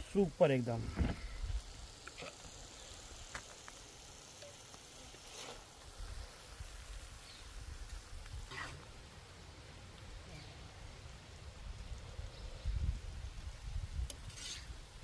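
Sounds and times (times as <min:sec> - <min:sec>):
metal spatula scraping and tapping: 0:14.1 - 0:14.7.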